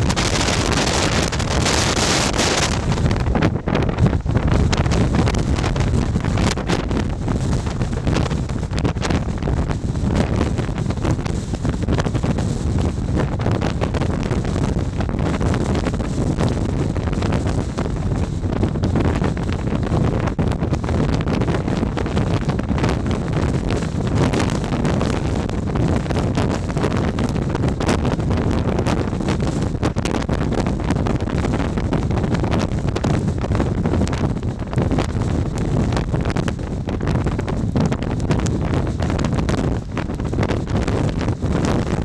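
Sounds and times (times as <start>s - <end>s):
strong wind buffeting microphone: 0.0s - 42.0s.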